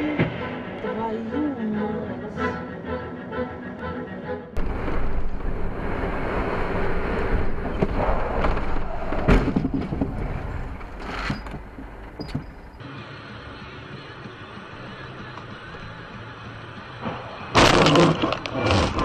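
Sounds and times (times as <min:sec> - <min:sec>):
vehicle road and engine noise: 0:04.5 - 0:19.0.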